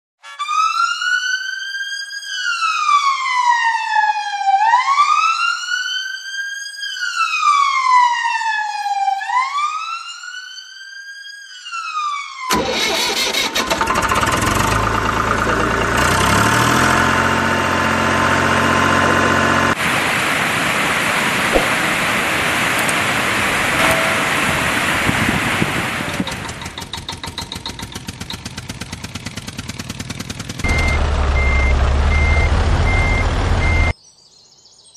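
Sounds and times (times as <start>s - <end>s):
wailing siren: 0.3s - 14.7s, 23.7s - 26.4s
loud engine running: 12.5s - 20.0s, 23.6s - 33.9s.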